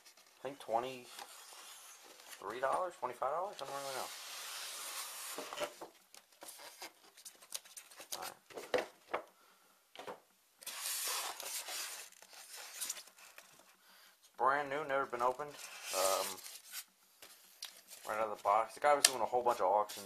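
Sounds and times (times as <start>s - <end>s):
cardboard and paper rustling: 0.0s - 9.2s, 10.6s - 13.7s.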